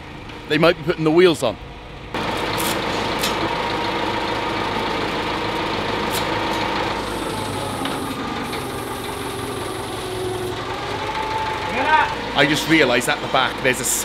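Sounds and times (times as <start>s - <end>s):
forklift engine idling: 2.1s - 14.0s.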